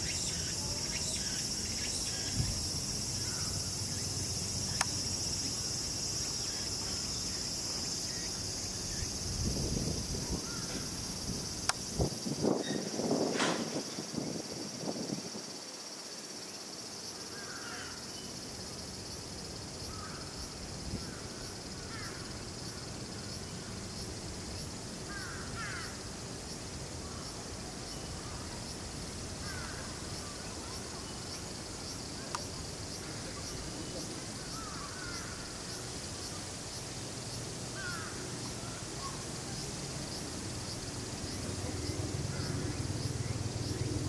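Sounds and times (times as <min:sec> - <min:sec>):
insects droning: 0:00.0 - 0:44.0
crow cawing: 0:25.1 - 0:26.0, 0:29.4 - 0:29.9, 0:37.8 - 0:38.2.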